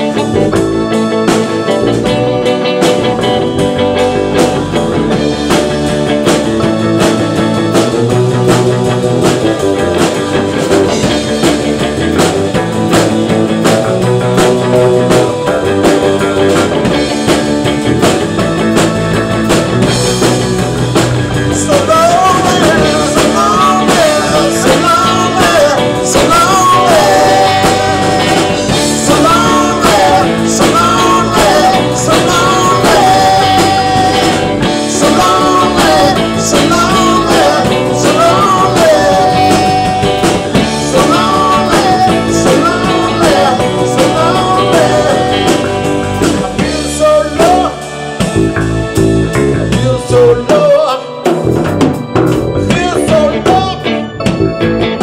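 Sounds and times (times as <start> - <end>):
bass guitar: 0.0 - 55.0
drum kit: 0.0 - 55.0
electric guitar: 0.0 - 55.0
man singing: 21.5 - 48.2, 49.6 - 51.5, 52.6 - 54.1.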